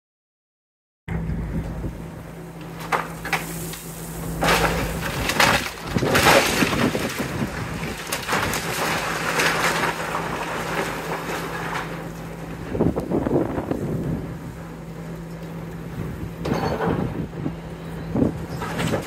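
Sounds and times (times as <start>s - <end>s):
excavator engine hum: 1.1s - 19.0s
brick and debris crashing: 4.3s - 12.9s, 18.4s - 19.0s.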